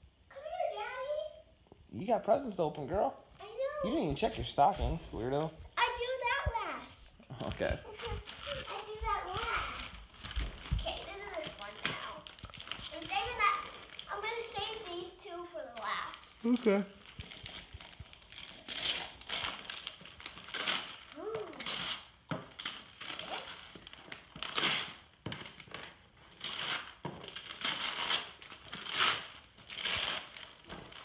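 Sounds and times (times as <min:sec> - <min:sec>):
wrapping paper ripping: 0:07.4 - 0:31.0.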